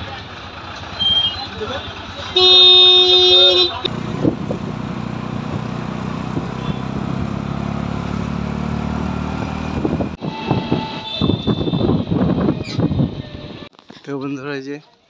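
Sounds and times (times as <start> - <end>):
vehicle engine droning: 0.0 - 10.2
vehicle horn: 2.3 - 4.0, 6.4 - 7.1, 10.2 - 12.5.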